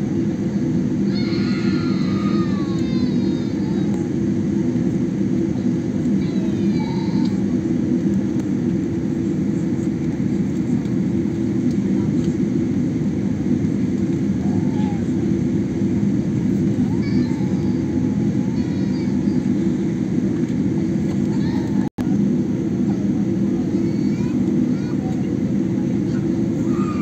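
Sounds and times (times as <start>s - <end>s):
airliner cabin engine rumble: 0.0s - 27.0s.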